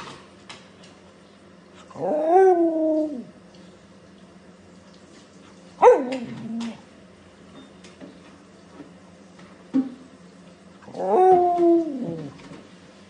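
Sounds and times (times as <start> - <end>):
dog howling: 1.9 - 3.3, 5.8 - 6.8, 10.8 - 12.4.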